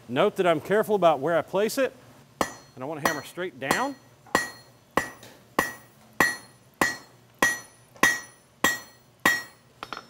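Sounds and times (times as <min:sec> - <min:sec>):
hammer striking steel on anvil: 0:02.4 - 0:10.0.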